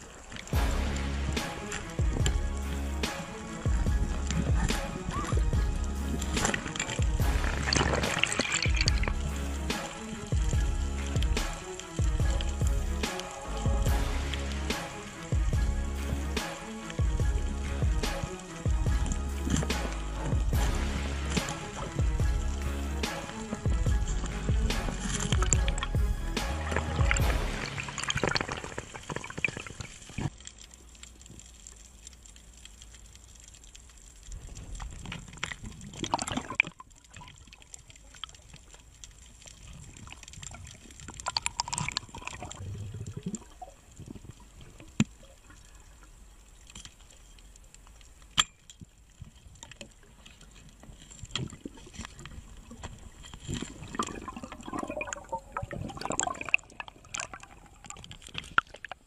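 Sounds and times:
muffled underwater bubbling: 0:00.0 - 0:30.4, 0:39.6 - 0:46.2, 0:51.4 - 0:59.0.

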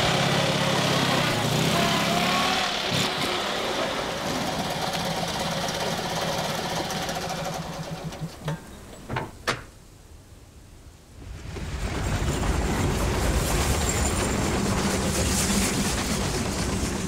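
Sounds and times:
train rumbling over bridge: 0:11.2 - 0:17.0.

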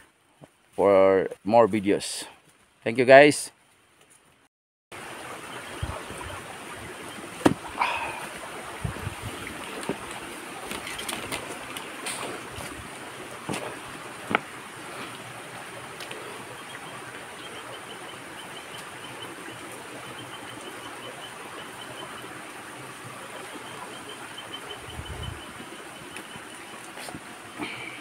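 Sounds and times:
waterfall rushing: 0:05.0 - 0:28.0.

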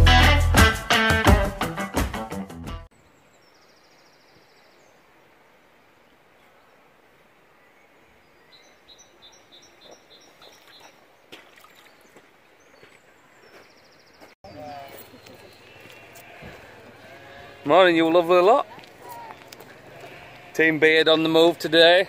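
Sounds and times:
small bird singing: 0:07.6 - 0:11.0, 0:11.6 - 0:16.4
stream running over stones: 0:10.3 - 0:13.1.

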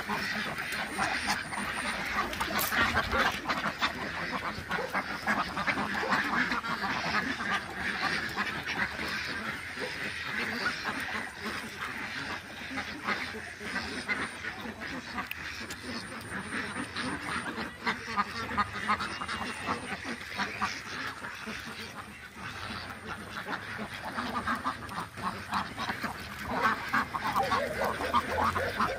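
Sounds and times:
flock of ducks quacking: 0:00.0 - 0:28.9.

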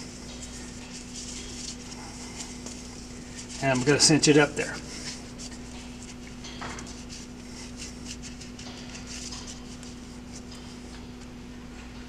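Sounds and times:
rope rustling and creaking: 0:00.0 - 0:04.2, 0:04.8 - 0:11.3
steady low hum: 0:00.0 - 0:12.0.

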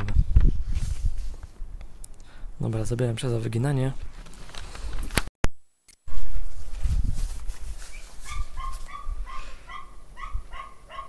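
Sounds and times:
dog yapping: 0:08.2 - 0:11.0.

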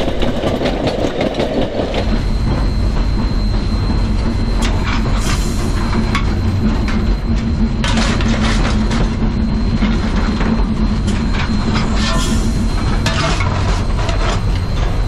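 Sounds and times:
clanks and rattles: 0:00.0 - 0:15.0
steam locomotive rumble: 0:00.0 - 0:15.0
rushing steam hiss: 0:02.1 - 0:06.4, 0:11.9 - 0:13.0.

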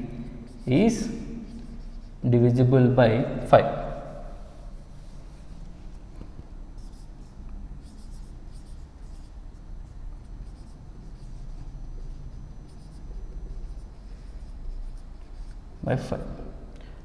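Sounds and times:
marker writing on a whiteboard: 0:00.0 - 0:02.6, 0:06.8 - 0:16.6.

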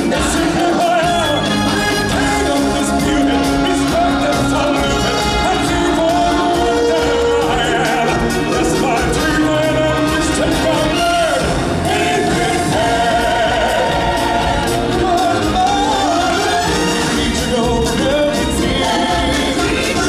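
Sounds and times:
chorus of singers: 0:00.0 - 0:20.0
loud band music: 0:00.0 - 0:20.0.

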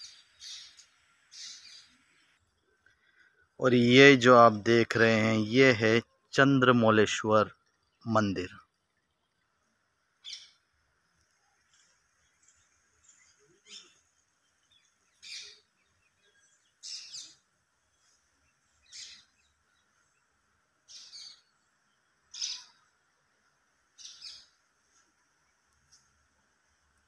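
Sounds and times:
bird calling: 0:00.0 - 0:02.2, 0:10.2 - 0:10.6, 0:11.6 - 0:23.0, 0:24.0 - 0:24.6
faint background hiss: 0:00.0 - 0:27.0.

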